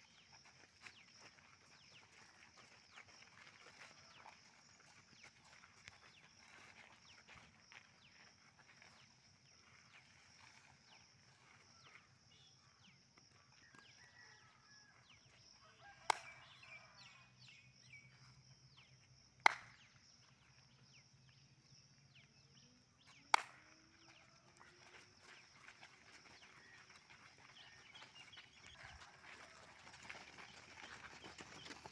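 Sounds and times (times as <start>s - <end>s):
sharp hand claps: 19.4s - 19.8s, 23.3s - 23.6s.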